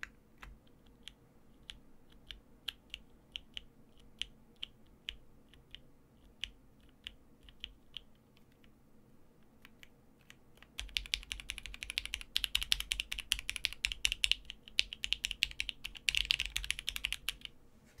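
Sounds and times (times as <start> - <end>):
mechanical keyboard typing: 9.6 - 17.5.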